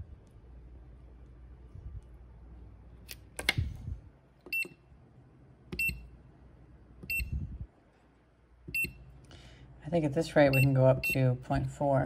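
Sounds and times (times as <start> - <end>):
short electronic beeps: 7.1 - 7.4.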